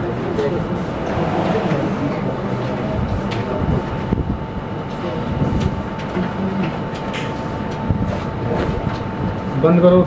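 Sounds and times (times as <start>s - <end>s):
thin whine: 0.5s - 4.3s
low rumble: 0.5s - 4.9s.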